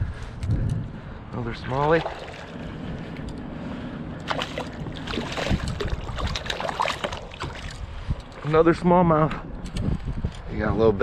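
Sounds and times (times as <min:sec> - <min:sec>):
wind: 0:00.0 - 0:11.0
lapping water: 0:01.7 - 0:03.4, 0:04.2 - 0:08.4
fish splashing at water surface: 0:01.8 - 0:02.8, 0:04.2 - 0:07.8.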